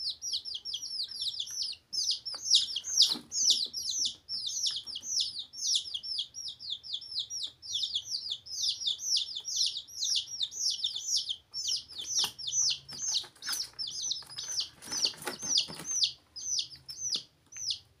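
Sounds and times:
baby chicks peeping: 0.0s - 18.0s
rustling and scuffling: 12.0s - 16.1s.

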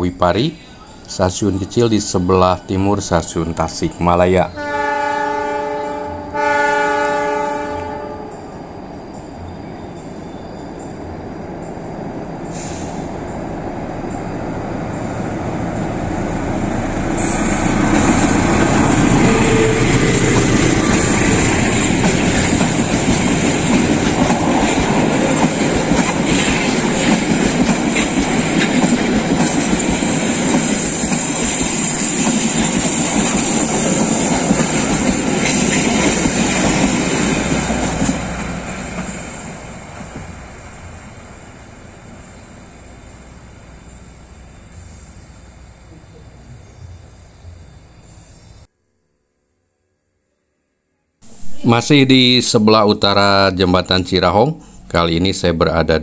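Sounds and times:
train rumbling past: 0.0s - 48.7s, 51.2s - 56.0s
train wheel clatter: 17.2s - 40.8s.

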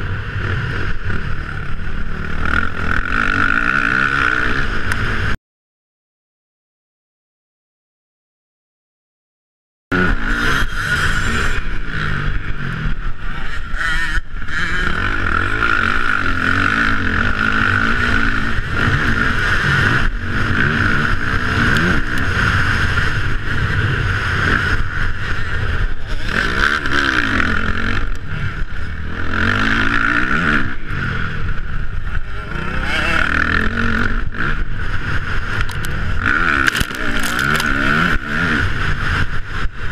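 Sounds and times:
motocross bike engine revving: 0.0s - 5.4s, 9.9s - 39.9s
steady rushing noise: 0.0s - 5.4s, 9.9s - 39.9s.

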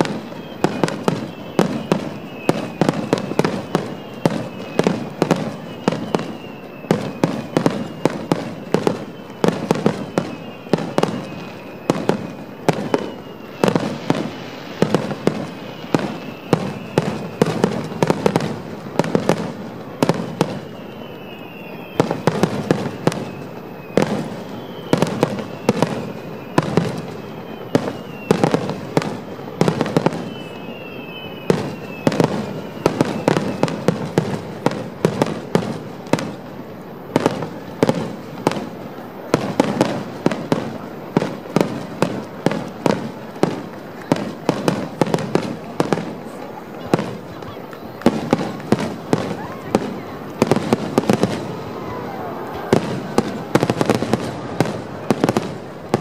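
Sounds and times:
fireworks bursting: 0.0s - 56.0s.

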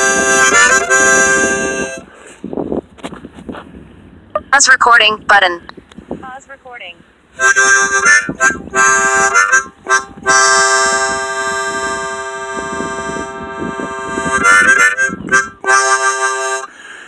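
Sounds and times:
harmonica playing: 0.0s - 2.1s, 7.4s - 17.0s.

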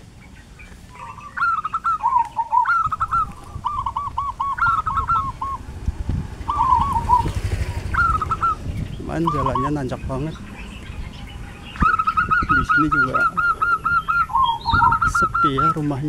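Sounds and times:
birds calling short notes: 0.0s - 16.0s
motor scooter engine: 3.1s - 12.3s.

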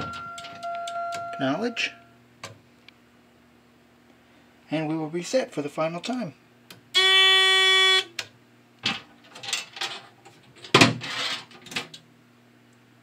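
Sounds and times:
fire alarm panel buzzing: 0.0s - 2.0s, 6.9s - 8.3s.

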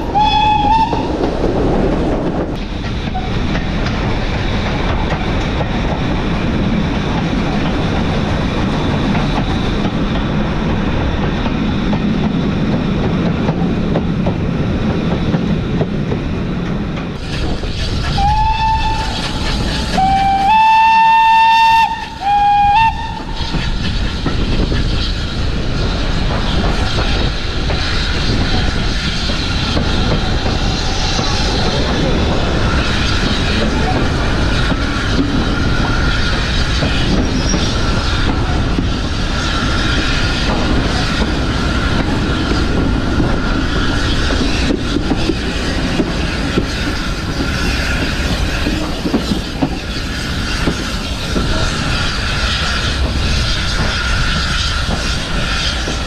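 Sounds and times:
steam train rumble and rail clatter: 0.0s - 56.0s
steam whistle blasts: 0.1s - 1.1s, 18.2s - 19.3s, 19.9s - 23.4s.

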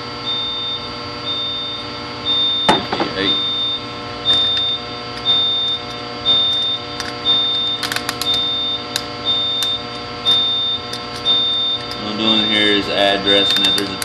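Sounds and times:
electrical hum: 0.0s - 14.0s
alarm panel beeping: 0.2s - 14.0s
small clicks: 13.4s - 14.0s.

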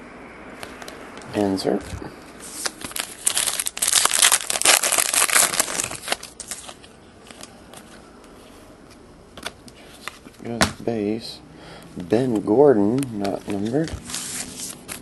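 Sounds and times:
foil wrapper tearing and crackling: 2.6s - 6.8s
faint clicks of cards handled: 12.3s - 14.0s.

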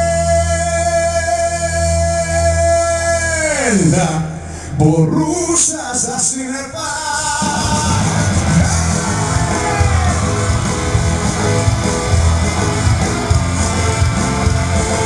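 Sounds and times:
rock song with guitar: 7.4s - 15.0s.

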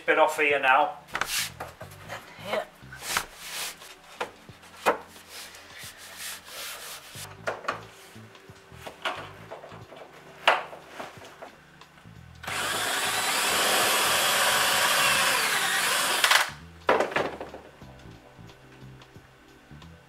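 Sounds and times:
cordless drill running: 12.4s - 16.6s.

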